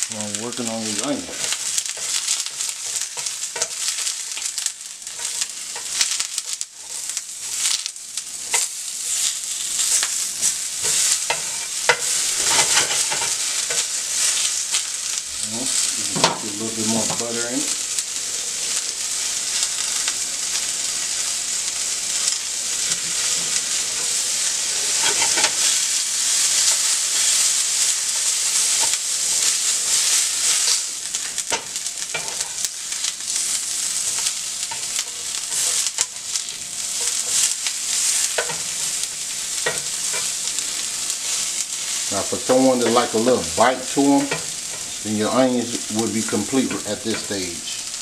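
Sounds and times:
onion rings sizzling in butter: 0:00.0 - 0:48.0
spatula scraping a pan: 0:00.8 - 0:07.8, 0:08.4 - 0:14.7, 0:22.2 - 0:27.5, 0:33.3 - 0:45.0.

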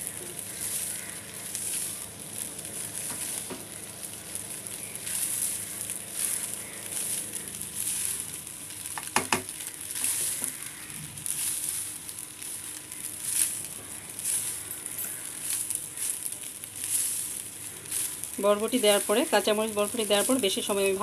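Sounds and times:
rice sizzling in a pan: 0:00.0 - 0:21.0.

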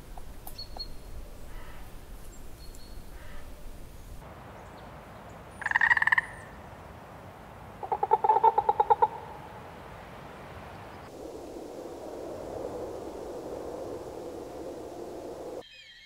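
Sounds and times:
frog croaking: 0:05.6 - 0:06.5, 0:07.8 - 0:09.4
low rushing noise: 0:09.0 - 0:15.6.

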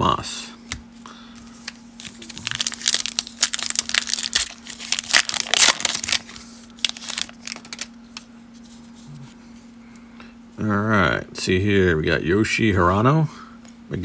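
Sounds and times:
wrapper crinkling and tearing: 0:02.0 - 0:08.0.

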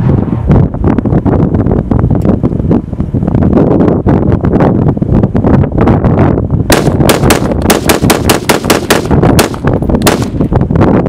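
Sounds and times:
wind buffeting microphone: 0:00.0 - 0:11.0
rapid gunfire: 0:06.7 - 0:10.4.

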